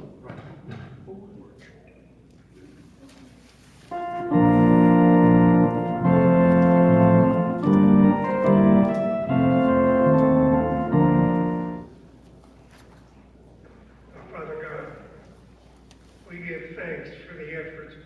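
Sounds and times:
organ playing held chords: 3.9 - 11.9.

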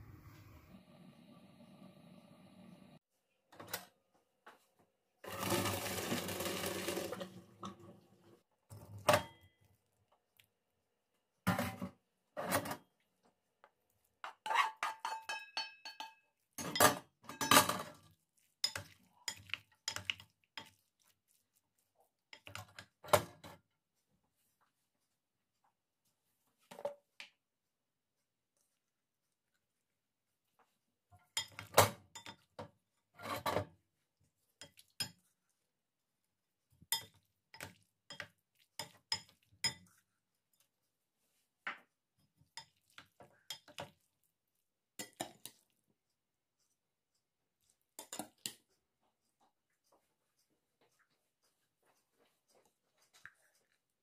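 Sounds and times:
utensils clinking on pot and bowl: 14.3 - 18.0, 18.6 - 20.7, 31.3 - 33.7, 36.8 - 40.0, 42.6 - 44.0, 45.0 - 45.6, 48.0 - 48.6.

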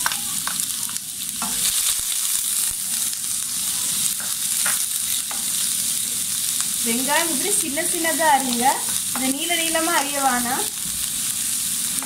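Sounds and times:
onions sizzling in hot oil: 0.0 - 12.0
spatula scraping and tapping pan: 4.2 - 5.6.

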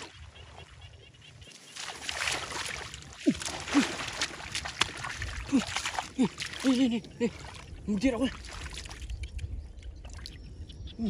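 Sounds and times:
hands splashing in muddy water: 1.5 - 9.4.

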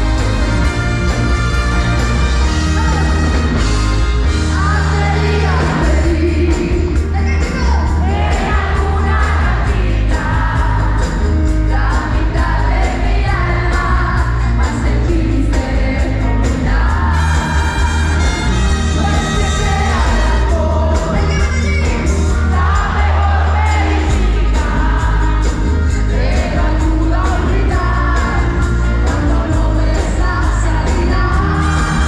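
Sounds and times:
pop-rock band playing: 0.0 - 32.0
woman singing: 4.4 - 18.2, 18.9 - 32.0.

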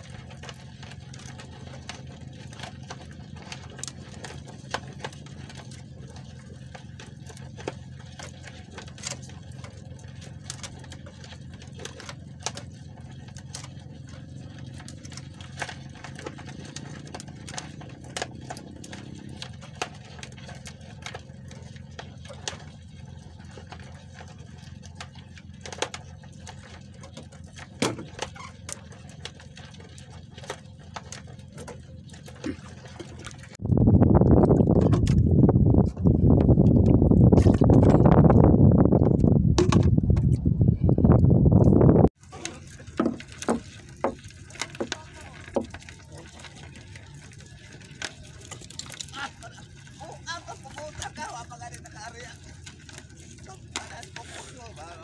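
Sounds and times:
water drips: 42.4 - 55.0.

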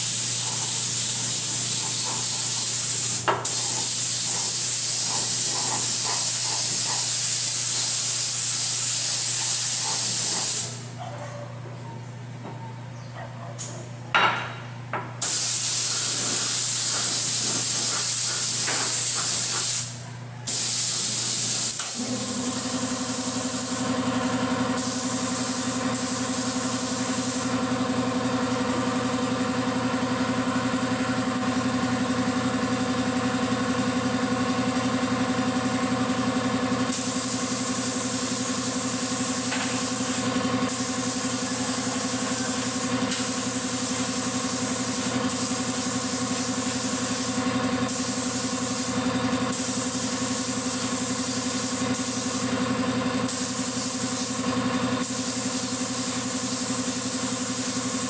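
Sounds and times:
paint spray gun hissing: 0.0 - 10.8, 15.2 - 28.2, 36.8 - 58.0
air compressor humming: 0.0 - 11.1, 14.2 - 58.0.

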